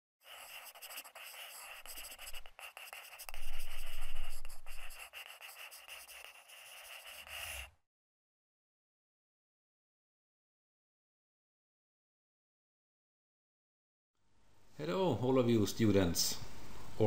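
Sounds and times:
pen scratching on paper: 0.2s - 7.7s.

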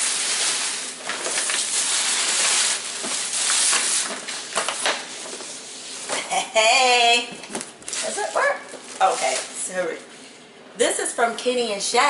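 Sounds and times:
tissue paper rustling: 0.0s - 6.1s, 7.8s - 9.8s.

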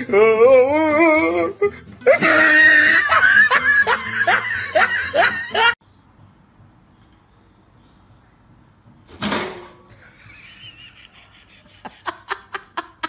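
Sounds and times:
person laughing: 0.0s - 5.8s, 10.0s - 13.0s.

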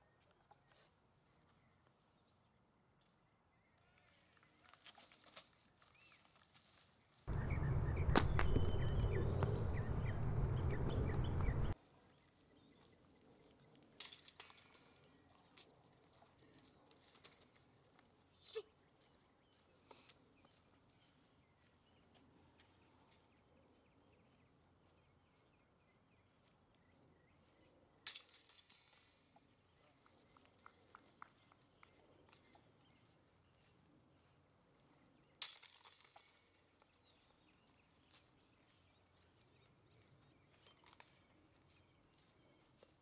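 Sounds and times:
chains clinking: 14.0s - 16.2s, 16.9s - 17.9s, 28.1s - 29.5s, 32.3s - 32.7s, 35.4s - 38.2s.

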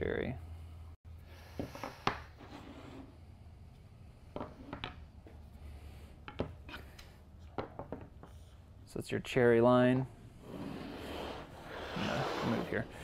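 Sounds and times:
steady low hum: 0.0s - 1.6s.

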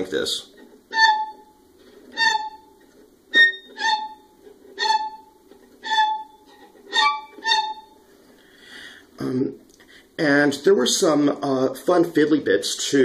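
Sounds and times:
viola creaky squeaks: 0.6s - 8.0s.

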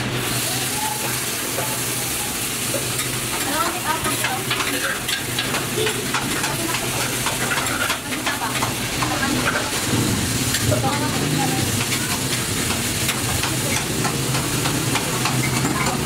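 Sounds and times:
meat sizzling on a griddle: 0.0s - 16.0s
metal spatula clicking and scraping: 4.2s - 9.7s.

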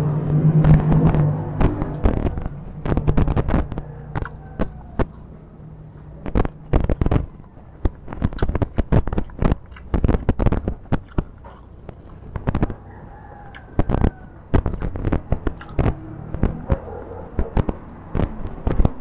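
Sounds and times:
chewing and lip-smacking: 4.1s - 12.8s, 13.5s - 13.7s, 14.8s - 16.0s.

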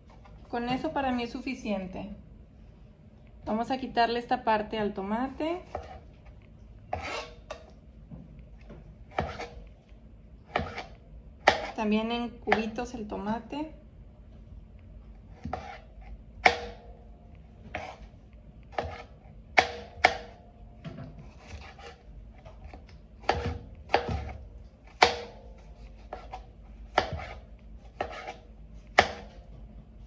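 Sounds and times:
knife striking cutting board: 6.9s - 7.6s, 9.1s - 9.6s, 10.5s - 11.8s, 15.4s - 15.8s, 16.4s - 16.9s, 17.7s - 18.0s, 18.7s - 20.4s, 23.2s - 27.4s, 28.0s - 28.4s, 29.0s - 29.4s.

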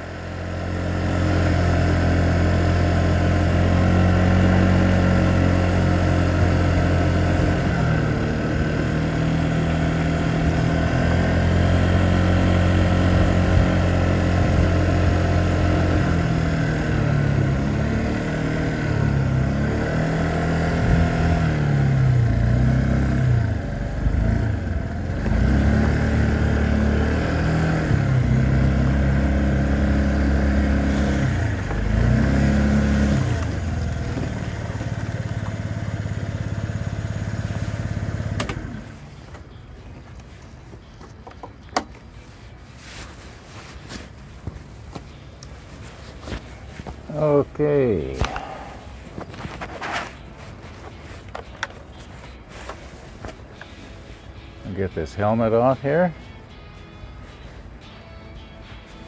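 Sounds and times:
scooter engine revving and idling: 0.0s - 39.2s, 47.1s - 50.2s.

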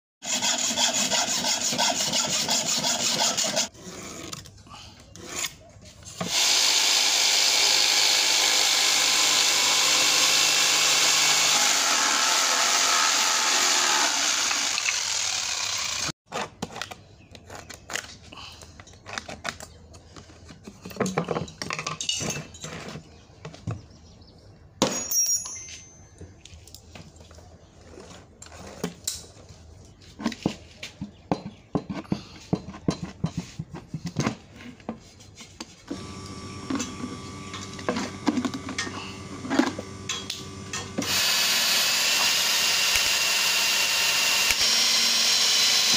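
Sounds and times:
hacksaw cutting metal rod: 0.2s - 3.7s, 36.7s - 45.9s
electric jigsaw cutting wood: 6.2s - 16.2s, 35.9s - 45.9s
sharp clink: 24.8s - 26.2s.

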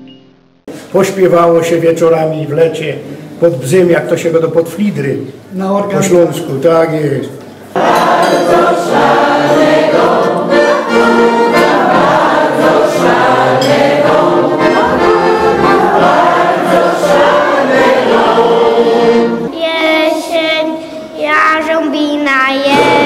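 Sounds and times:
group singing: 7.7s - 20.3s
piano accordion playing: 7.8s - 19.6s.

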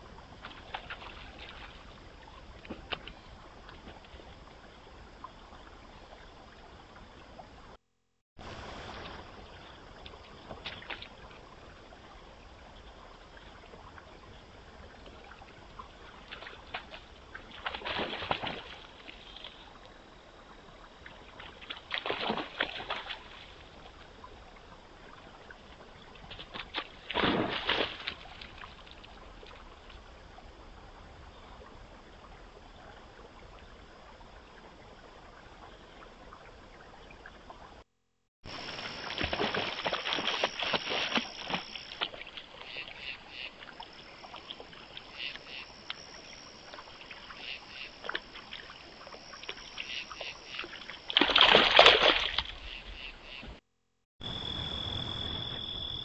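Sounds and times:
deer splashing in water: 0.4s - 4.3s, 15.2s - 19.6s, 21.3s - 24.0s, 26.3s - 29.8s, 38.5s - 52.8s.

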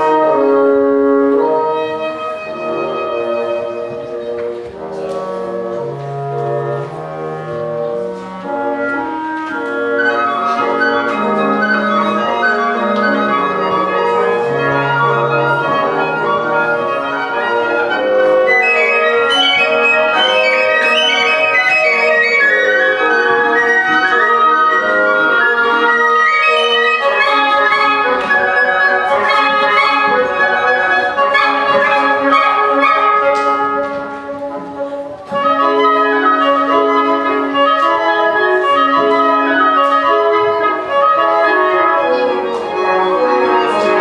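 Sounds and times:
bassoon: 0.0s - 44.0s
clarinet: 0.0s - 44.0s
flute: 0.0s - 44.0s
french horn: 0.0s - 44.0s
oboe: 0.0s - 44.0s.

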